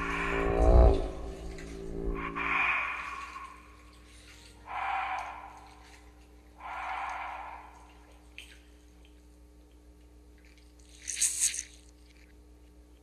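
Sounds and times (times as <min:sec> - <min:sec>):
low steady hum: 0:00.0 - 0:13.0
heavy breathing: 0:02.2 - 0:08.4.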